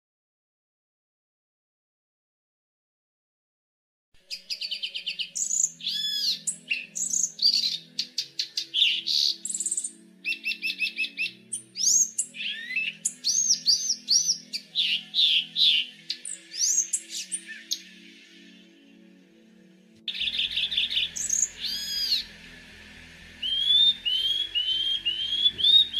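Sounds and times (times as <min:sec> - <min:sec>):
bird singing: 0:04.2 - 0:19.1, 0:20.1 - 0:25.9.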